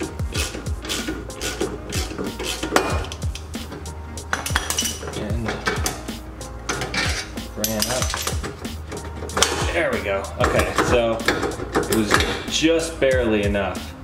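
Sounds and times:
electronic music with deep bass: 0:00.0 - 0:04.3
steel tools clinking and clattering: 0:04.2 - 0:09.7.

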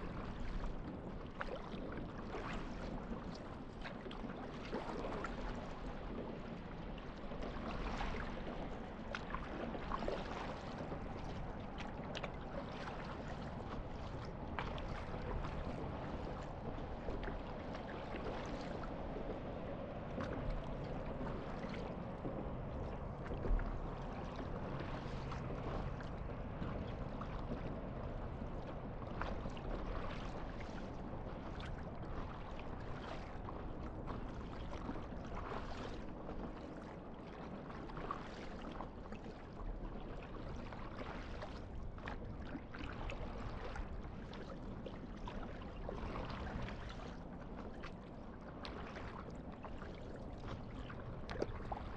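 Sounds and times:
water splashing against paddleboard: 0:37.2 - 0:39.6, 0:40.6 - 0:48.0, 0:48.6 - 0:51.9.

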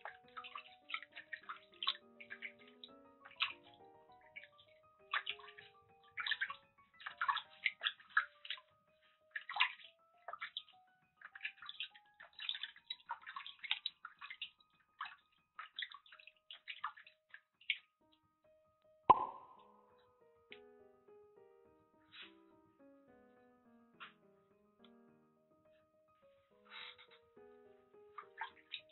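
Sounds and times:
water sloshing in washbasin: 0:00.0 - 0:08.7, 0:09.3 - 0:17.9, 0:28.2 - 0:28.9.

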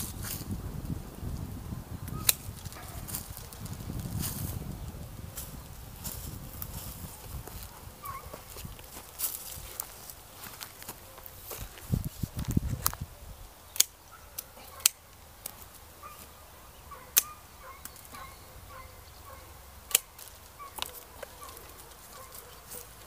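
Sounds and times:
pruning shears snipping: 0:02.1 - 0:03.5, 0:13.7 - 0:15.8, 0:17.0 - 0:18.3, 0:19.8 - 0:23.0.

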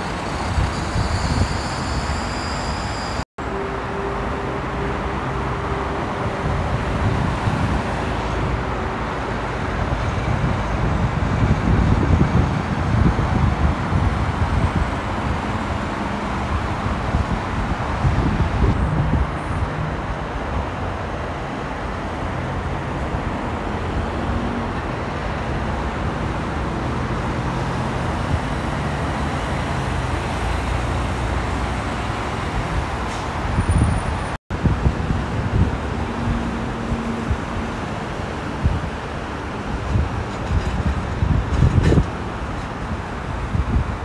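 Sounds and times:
freeway traffic roar: 0:00.0 - 0:44.0.

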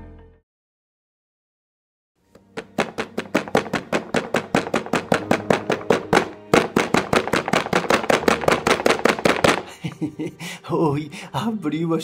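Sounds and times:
rapid sharp clicks: 0:02.4 - 0:09.7.

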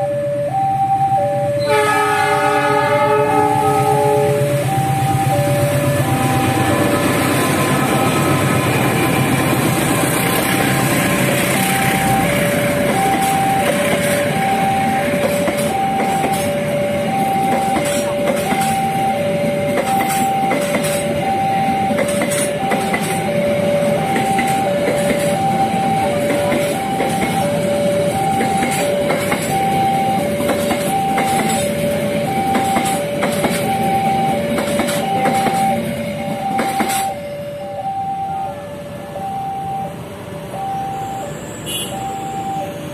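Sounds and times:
level crossing alarm: 0:00.0 - 0:42.9
train passing at speed: 0:00.0 - 0:42.9
wheels clicking over rail joints: 0:21.8 - 0:23.4, 0:24.0 - 0:37.1.

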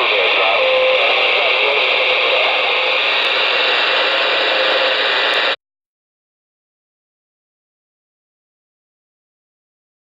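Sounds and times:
radio static hiss: 0:00.0 - 0:05.6.

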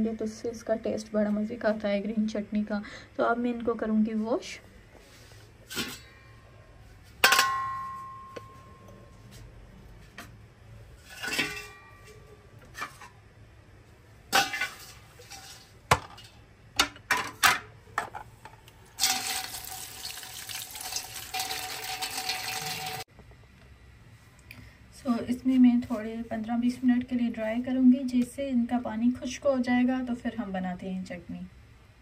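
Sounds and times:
tap water pouring: 0:19.0 - 0:23.0.

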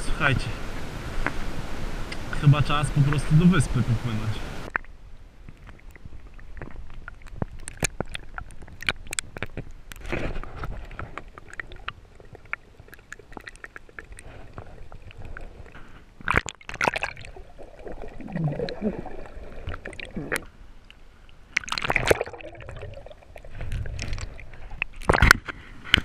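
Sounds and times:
muffled underwater water sloshing: 0:00.8 - 0:25.6
small clicks and crackles: 0:04.7 - 0:17.0, 0:23.5 - 0:26.0
water splash: 0:16.2 - 0:20.5, 0:21.5 - 0:25.4.

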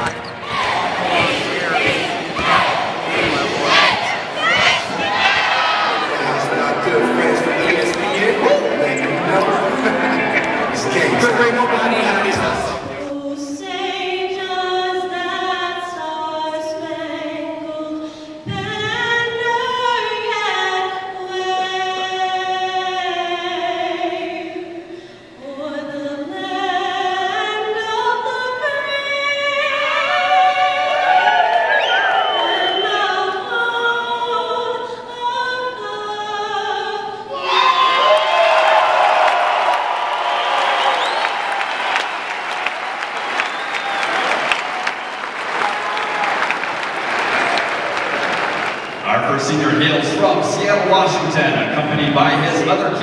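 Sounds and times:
crowd cheering: 0:00.0 - 0:13.0, 0:30.0 - 0:33.3, 0:37.3 - 0:51.0
woman singing over sound system: 0:07.1 - 0:31.1, 0:32.3 - 0:37.3.

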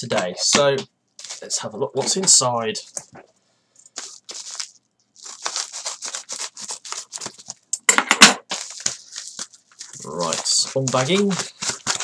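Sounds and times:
scissors snipping paper: 0:04.0 - 0:07.6, 0:08.5 - 0:12.0.

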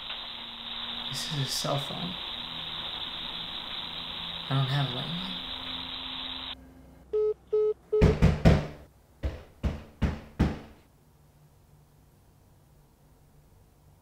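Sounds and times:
phone call end beeps: 0:07.2 - 0:08.1
pounding knocks on a door: 0:08.0 - 0:10.8.

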